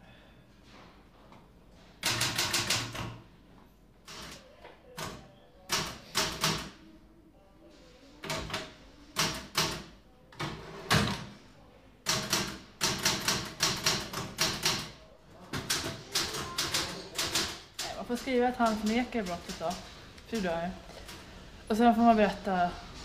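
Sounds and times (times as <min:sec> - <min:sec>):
typewriter keys clattering: 0:15.6 - 0:21.2.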